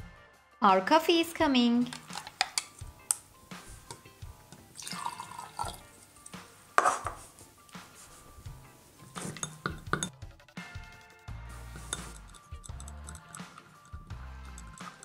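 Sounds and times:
coffee pouring and splashing: 4.5 - 6.4, 11.6 - 15.0
spoon stirring in glass mug: 4.6 - 7.3, 9.0 - 10.2, 11.6 - 15.0.

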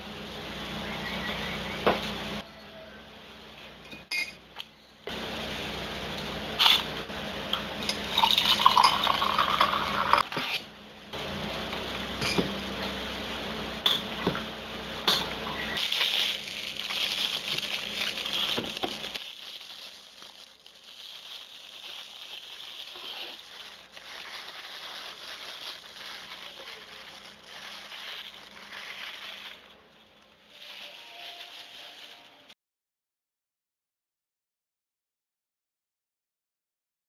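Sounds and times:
plastic bag crinkling: 15.8 - 32.6.

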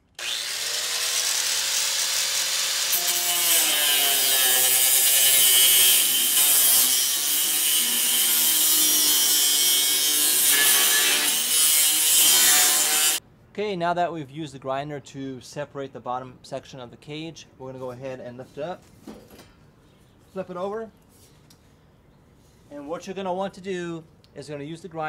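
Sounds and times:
angle grinder cutting metal: 0.0 - 13.2.

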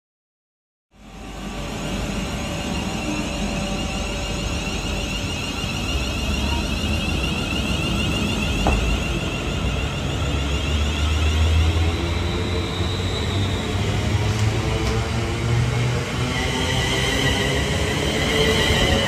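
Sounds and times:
train passing: 1.0 - 19.0.

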